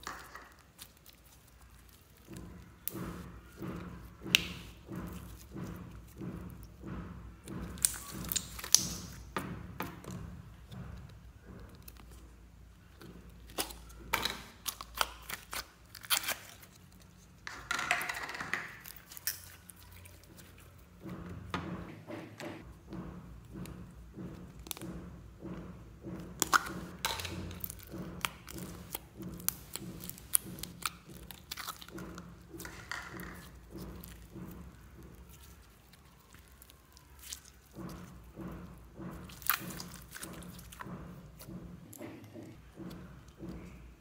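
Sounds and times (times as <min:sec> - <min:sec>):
slime squeezed with sticky pops: 0:07.5 - 0:17.2, 0:26.2 - 0:41.9.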